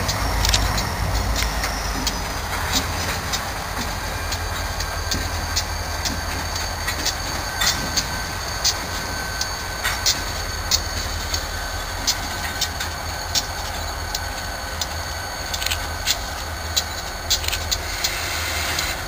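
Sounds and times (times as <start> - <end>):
locomotive low rumble: 0.0 - 18.2.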